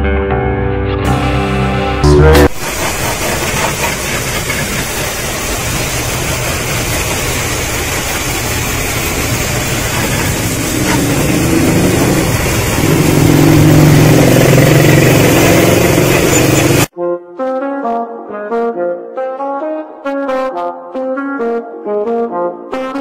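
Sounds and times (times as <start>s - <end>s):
pressure washer jet hissing: 2.5s - 16.9s
washer motor and pump humming: 2.5s - 16.9s.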